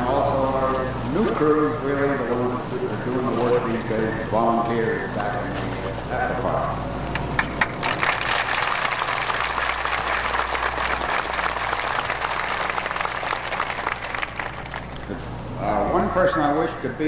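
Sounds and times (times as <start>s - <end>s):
large crowd applauding: 7.3s - 15.1s.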